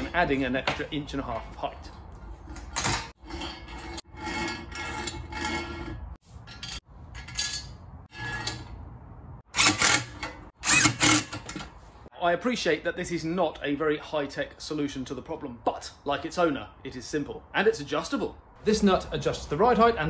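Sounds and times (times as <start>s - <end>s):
metal parts scraping: 2.2s - 8.8s, 9.5s - 11.8s.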